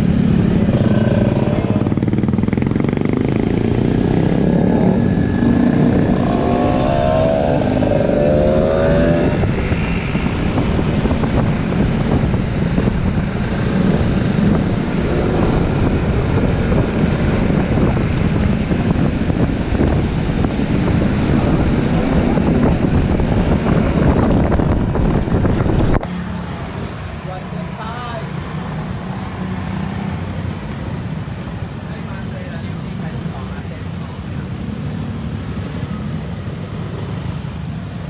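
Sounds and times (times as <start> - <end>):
scooter engine running: 0.0 - 6.0
wind rumble on microphone: 0.0 - 26.1
traffic: 0.0 - 38.0.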